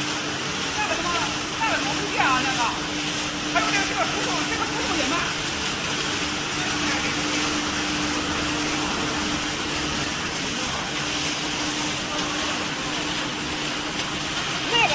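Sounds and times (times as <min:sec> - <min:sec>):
motor hum: 0:00.0 - 0:14.9
popcorn churning rustle: 0:00.0 - 0:14.9.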